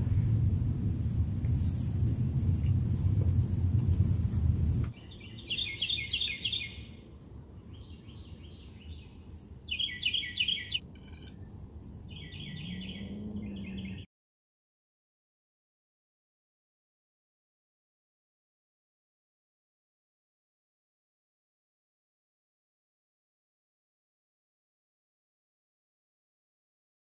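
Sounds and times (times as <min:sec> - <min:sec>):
low rumbling: 0:00.0 - 0:05.3, 0:10.8 - 0:14.1
songbird singing: 0:00.0 - 0:14.1.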